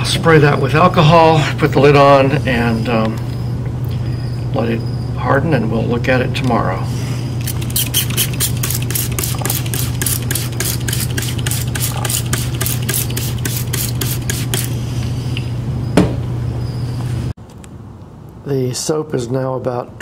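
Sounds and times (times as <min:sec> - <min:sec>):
steady low hum: 0:00.0 - 0:20.0
spray bottle squirts: 0:07.4 - 0:14.8
knock: 0:16.0 - 0:16.2.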